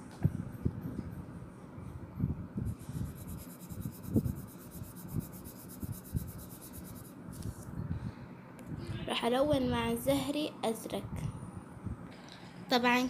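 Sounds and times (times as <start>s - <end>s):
pencil scratching on paper: 2.8s - 7.1s.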